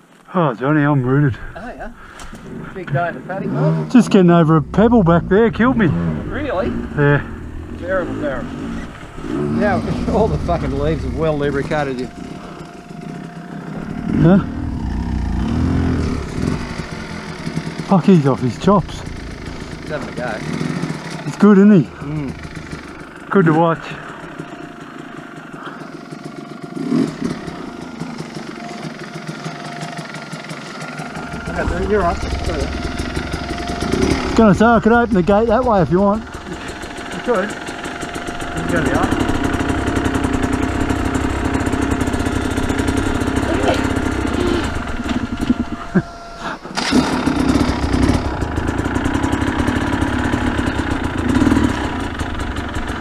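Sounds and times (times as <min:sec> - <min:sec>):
motorcycle engine idling: 0:00.7 - 0:53.0.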